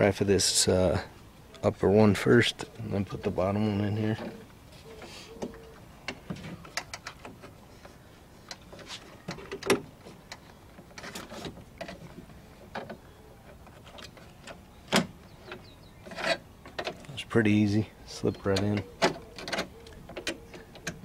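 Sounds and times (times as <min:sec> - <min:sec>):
plastic door handle clicking: 0:18.6 - 0:21.0.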